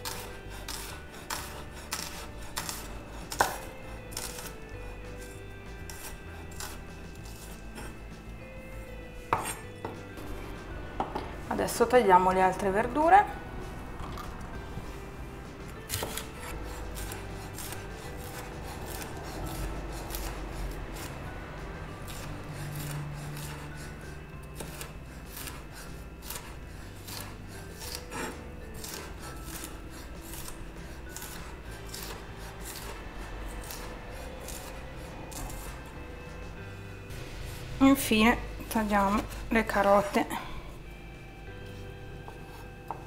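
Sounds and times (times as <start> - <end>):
knife chopping on wooden board: 0.0 - 4.6, 5.8 - 8.0, 9.3 - 10.0, 15.9 - 21.2, 22.1 - 33.0, 33.6 - 35.9.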